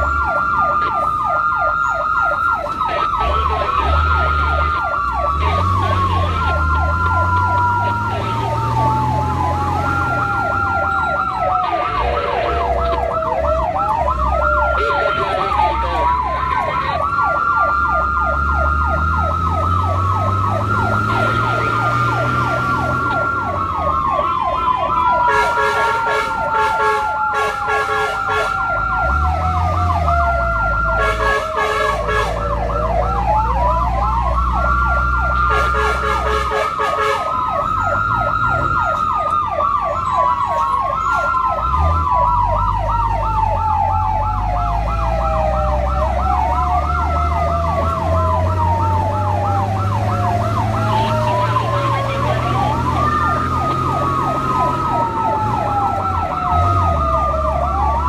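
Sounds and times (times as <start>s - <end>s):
siren wail: 0.0s - 58.0s
siren yelp: 0.0s - 58.0s
horn blasts: 31.0s - 32.4s, 35.4s - 37.3s.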